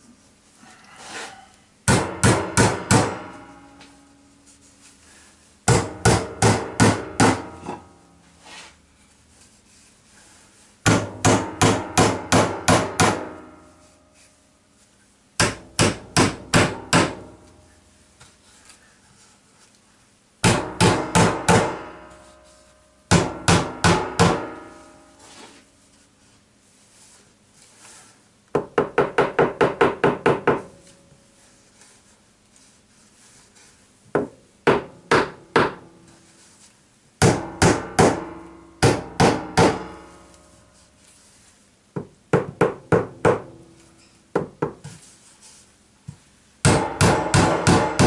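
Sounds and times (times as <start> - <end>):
hammer driving nails: 15.4 - 17.3, 37.2 - 40.0, 46.7 - 48.0.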